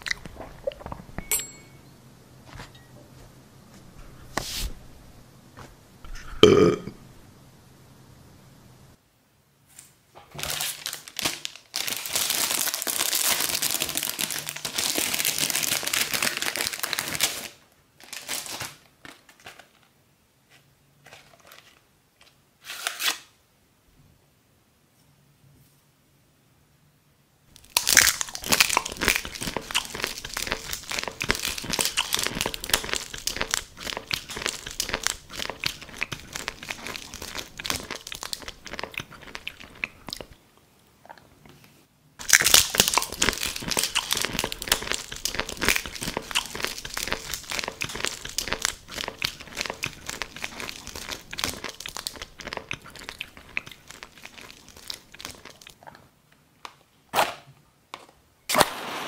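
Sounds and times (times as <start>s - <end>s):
close crunching and chewing: 27.6s - 40.4s, 42.2s - 56.0s.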